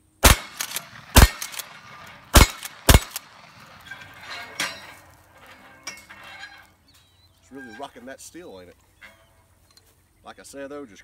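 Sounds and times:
shotgun shots: 0.0 - 4.9
shot clinking on steel plates: 0.4 - 6.8.

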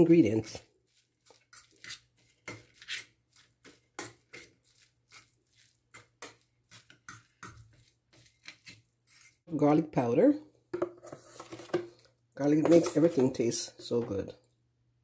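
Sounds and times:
fork scraping metal bowl: 0.9 - 9.4, 12.6 - 13.4.

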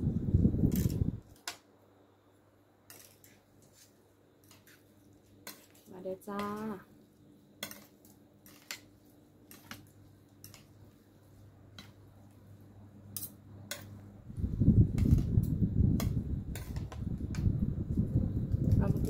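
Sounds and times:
loud low rustling rumble: 0.0 - 1.2, 14.2 - 19.0.

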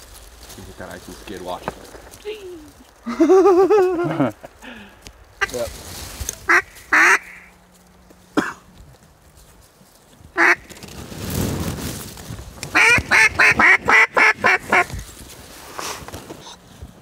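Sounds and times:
duck call quacks: 6.5 - 7.5, 10.4 - 10.6, 12.7 - 14.9.

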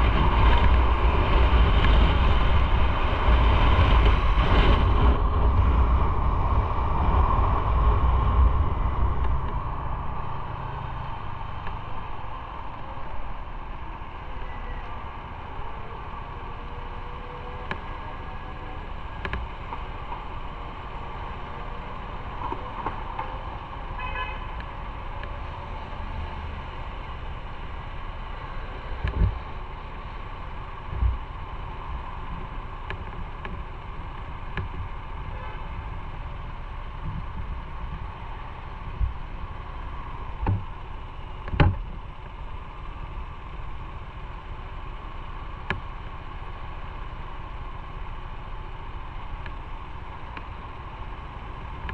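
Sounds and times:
traffic idling: 0.0 - 51.9
motorcycle idling: 7.2 - 51.9
car horn toot: 24.0 - 24.6, 35.3 - 35.7.

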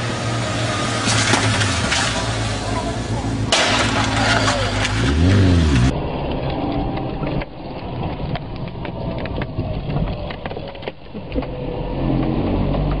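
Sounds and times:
sharp crackles and knocks: 6.3 - 13.0.

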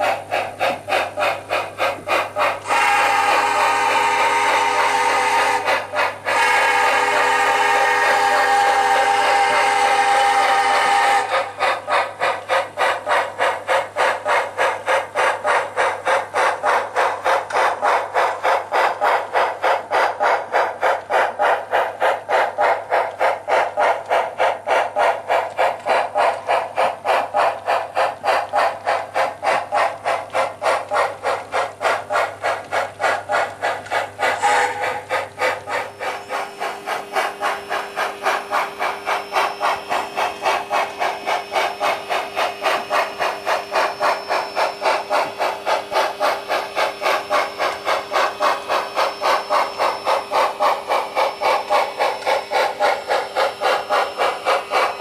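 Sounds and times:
model steam locomotive chuffing: 0.0 - 55.0.

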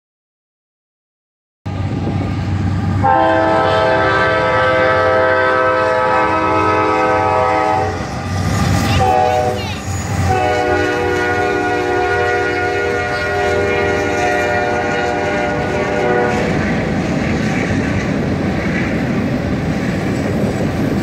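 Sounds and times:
locomotive rumble: 1.7 - 21.0
locomotive air horn: 3.0 - 8.1, 8.9 - 9.6, 10.2 - 16.6.

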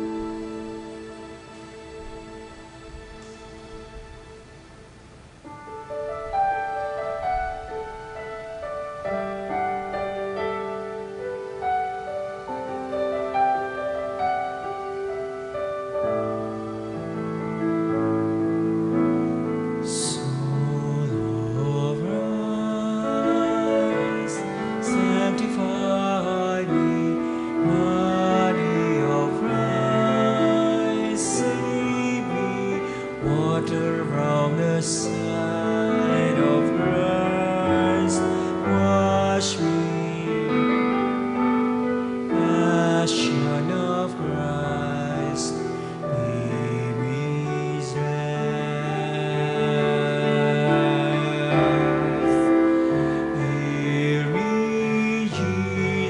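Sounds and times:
hymn on piano: 0.0 - 56.0
people singing: 20.2 - 40.3.

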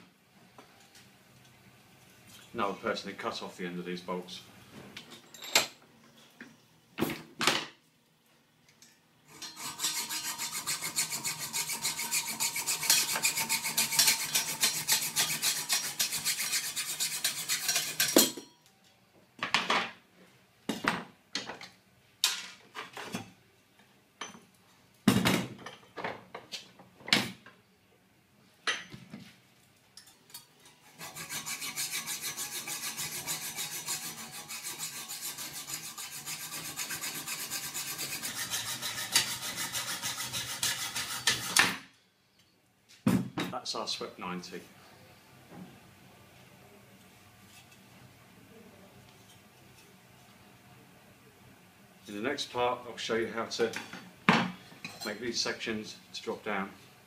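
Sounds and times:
hacksaw cutting bolts: 9.3 - 18.2, 31.0 - 41.8.

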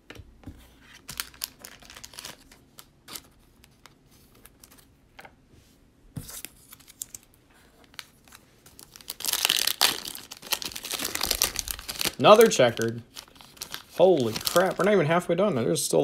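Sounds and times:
foil wrappers crinkling: 1.0 - 3.8, 6.6 - 15.2.

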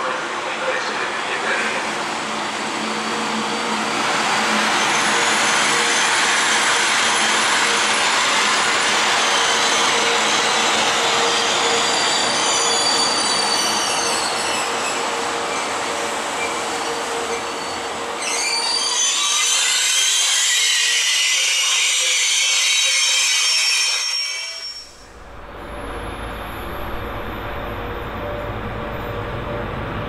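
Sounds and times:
train wheels rumbling on rail: 0.0 - 30.0
high wheel squeal: 3.0 - 15.7, 16.4 - 25.1.

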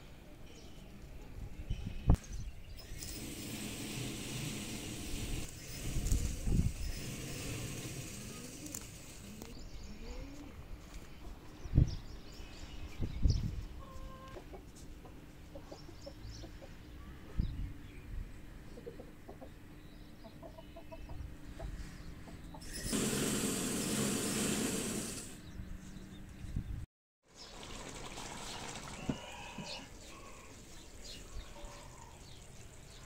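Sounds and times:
hen clucking softly: 18.7 - 19.6.

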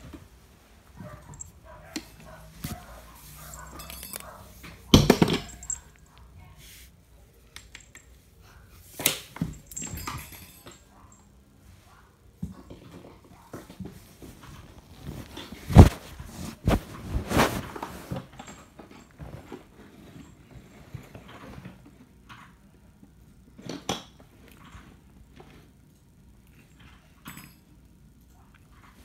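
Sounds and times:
rubbing against fabric: 14.5 - 18.2
soft scuffs and knocks: 15.0 - 18.3.

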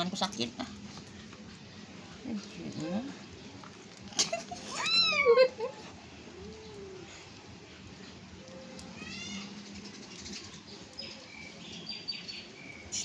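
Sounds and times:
cat meowing: 4.7 - 5.4, 8.8 - 9.6.

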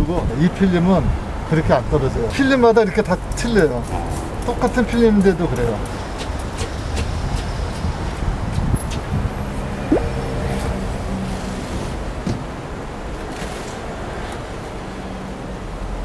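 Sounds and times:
street traffic noise: 0.0 - 16.0
short rising squeak: 9.9 - 10.3.

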